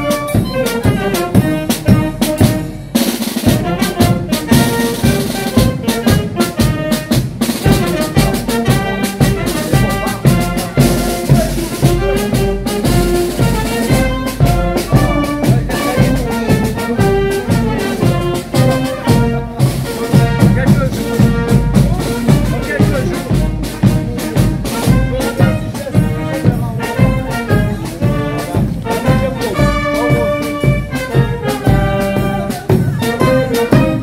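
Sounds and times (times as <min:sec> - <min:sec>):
brass instruments playing a tune: 0:00.0 - 0:34.0
drums keeping a beat: 0:00.0 - 0:34.0.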